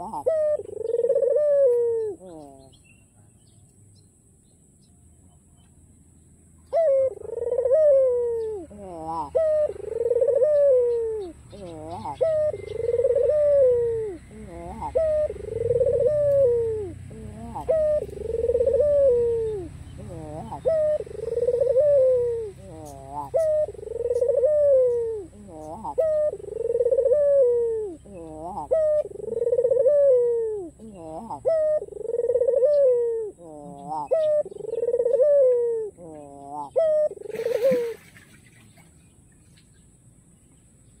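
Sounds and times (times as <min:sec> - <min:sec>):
dove cooing: 0:00.0 - 0:02.8, 0:06.7 - 0:38.2.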